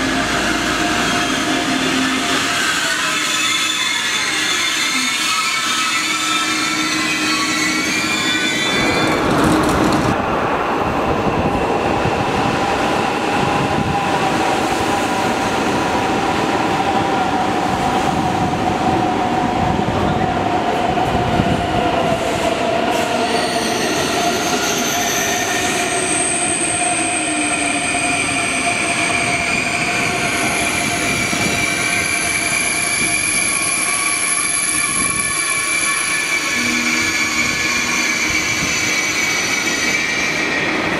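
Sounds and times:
high brake squealing: 0:02.6 - 0:09.3, 0:23.2 - 0:40.8.

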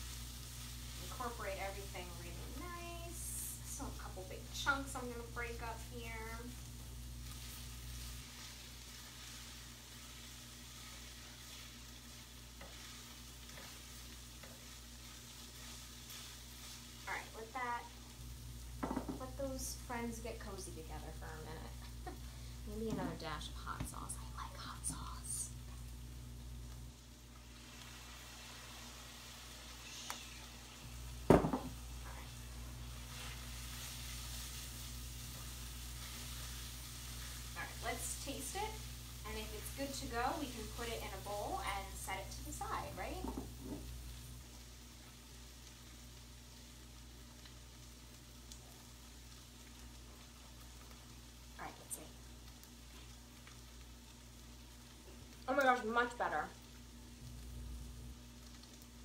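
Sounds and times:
food sizzling in a frying pan: 0:00.0 - 0:59.0
spatula stirring food: 0:05.0 - 0:19.3, 0:32.0 - 0:48.1.

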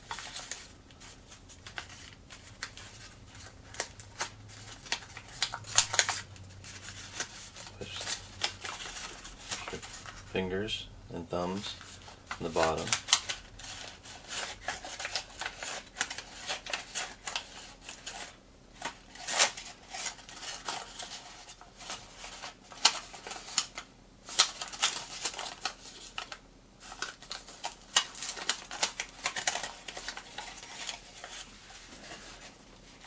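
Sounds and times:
paper crackling and rustling: 0:00.0 - 0:10.7, 0:11.4 - 0:33.0.

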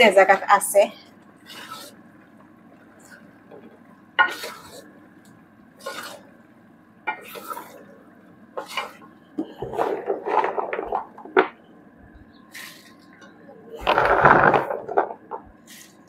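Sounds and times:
wooden spoon scraping a pan: 0:01.4 - 0:02.0, 0:04.2 - 0:04.9, 0:05.8 - 0:06.4, 0:07.1 - 0:07.9, 0:08.6 - 0:11.5.

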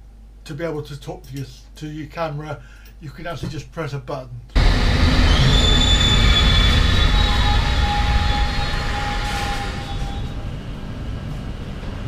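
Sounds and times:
underground train running: 0:04.6 - 0:12.0.

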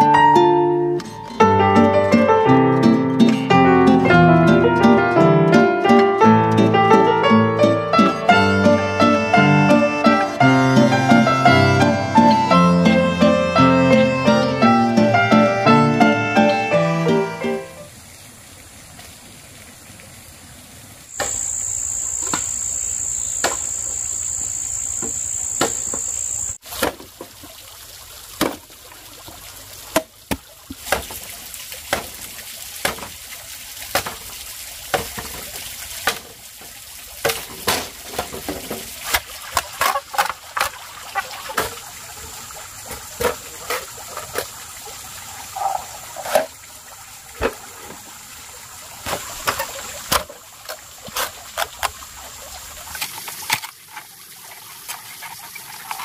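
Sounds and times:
water trickling from a pipe: 0:17.8 - 0:56.0
machete chopping bamboo: 0:26.7 - 0:27.1, 0:29.9 - 0:31.2, 0:31.9 - 0:33.2, 0:33.9 - 0:34.3, 0:34.9 - 0:35.4, 0:36.0 - 0:36.4, 0:37.2 - 0:38.3.

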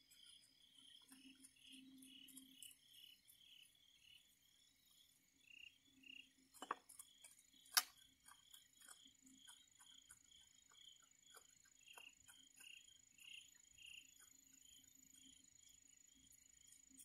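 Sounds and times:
crickets chirping: 0:00.0 - 0:17.0
faint ticks: 0:06.5 - 0:17.0
sharp clicks: 0:07.6 - 0:10.2.

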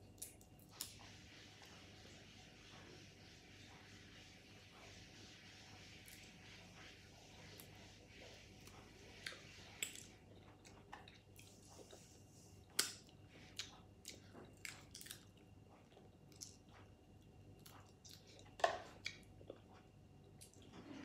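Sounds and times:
person chewing: 0:12.8 - 0:16.9, 0:17.6 - 0:20.7.

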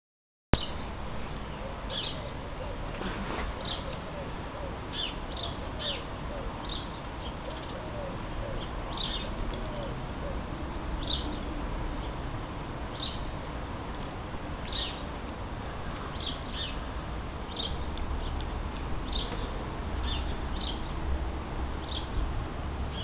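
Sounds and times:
birds chirping: 0:00.6 - 0:02.9, 0:03.6 - 0:09.9, 0:11.0 - 0:12.2, 0:14.6 - 0:15.1, 0:16.0 - 0:16.9, 0:17.5 - 0:18.4, 0:19.0 - 0:21.1, 0:21.8 - 0:22.3
low cooing: 0:01.6 - 0:04.8, 0:07.5 - 0:10.4.

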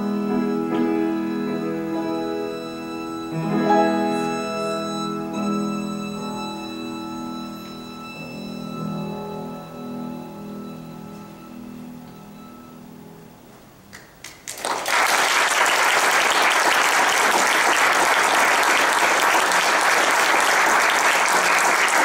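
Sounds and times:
violin and piano note: 0:00.0 - 0:12.9
audience applause: 0:14.2 - 0:22.0.

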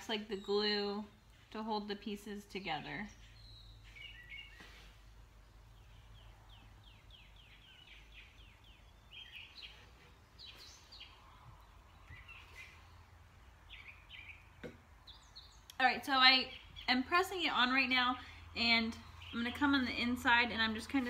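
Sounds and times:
birds chirping faintly: 0:00.0 - 0:21.0.

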